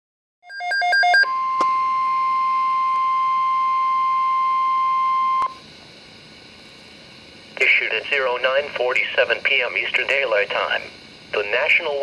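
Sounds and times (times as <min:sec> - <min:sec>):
beeping pips: 0:00.4 - 0:05.6
steady warning alarm tone: 0:00.4 - 0:05.7
receiver low hiss: 0:01.6 - 0:12.0.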